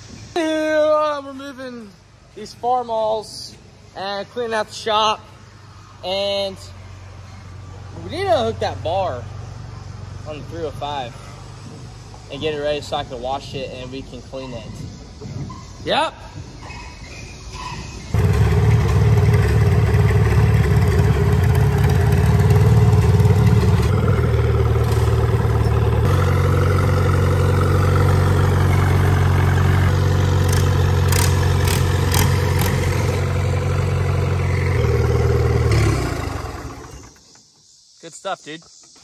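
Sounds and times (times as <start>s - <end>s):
tractor engine running: 18.2s - 37.3s.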